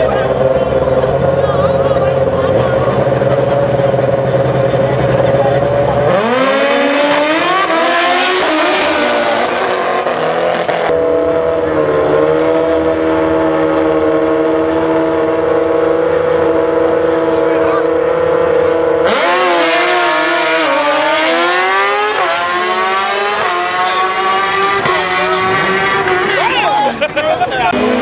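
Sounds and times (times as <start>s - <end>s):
motorcycles idling: 0.0s - 7.4s, 10.2s - 19.6s
motorcycle engine revving and accelerating: 0.0s - 26.7s, 27.6s - 28.0s.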